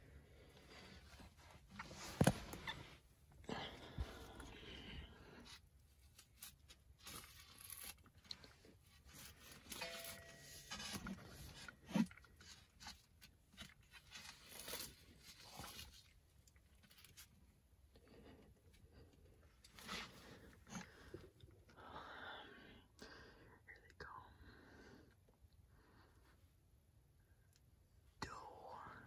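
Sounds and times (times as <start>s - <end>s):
handling rustling and crinkling: 0.6s - 4.5s, 5.4s - 17.6s.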